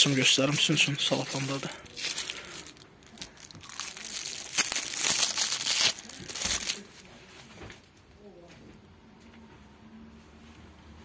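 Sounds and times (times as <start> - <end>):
cellophane crinkling: 0.0 - 7.1.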